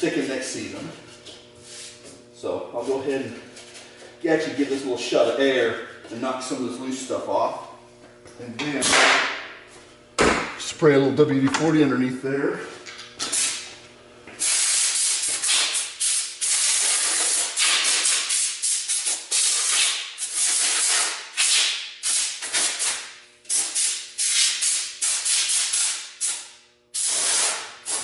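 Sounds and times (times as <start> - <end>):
air blow gun hissing: 14.4 - 22.9, 27.0 - 28.0.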